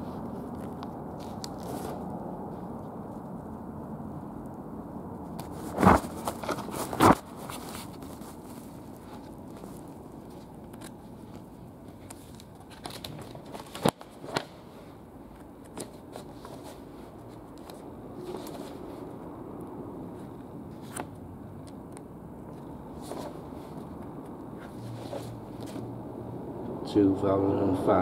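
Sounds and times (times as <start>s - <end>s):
background noise: 0.0s - 28.0s
paper pages rustling: 0.2s - 2.1s, 5.4s - 14.7s, 15.3s - 19.0s, 22.5s - 24.0s.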